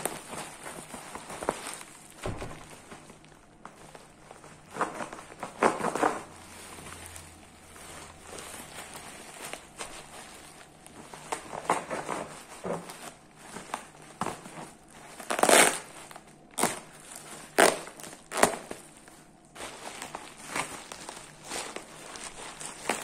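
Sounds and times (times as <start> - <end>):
plastic bag crinkling: 0.0 - 23.0
scissors cutting plastic: 15.1 - 18.8.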